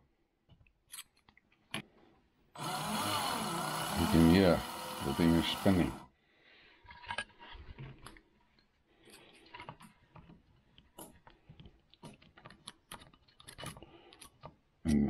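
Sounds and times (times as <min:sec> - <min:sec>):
small plastic parts clicking and rattling: 0:00.5 - 0:02.0, 0:06.8 - 0:15.0.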